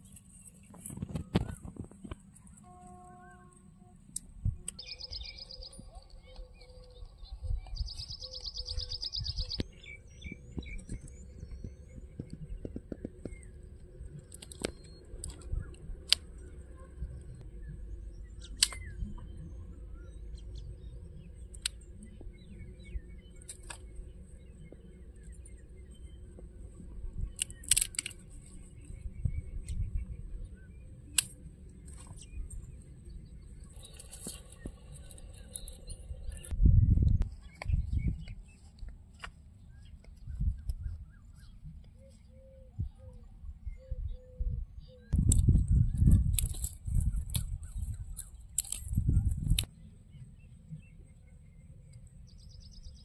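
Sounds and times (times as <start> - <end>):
birds chirping: 0.0 - 53.0
dry sticks crackling and snapping: 4.1 - 16.6, 18.4 - 19.2, 21.4 - 22.3, 23.3 - 24.0, 27.2 - 29.9, 31.0 - 32.8, 33.6 - 36.6, 45.2 - 49.7.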